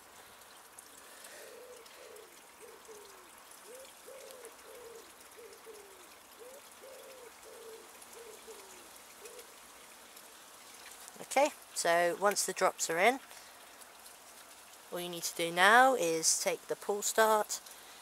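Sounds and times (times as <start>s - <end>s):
dove cooing: 1.0s - 9.8s.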